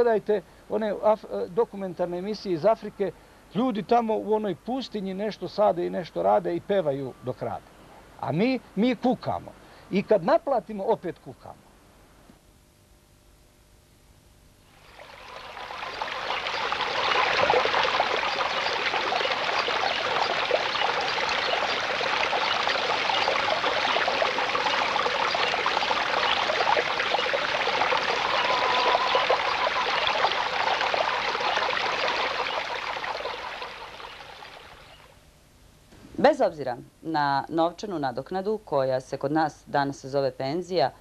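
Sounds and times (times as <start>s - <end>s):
stream trickling over stones: 14.7s - 35.1s.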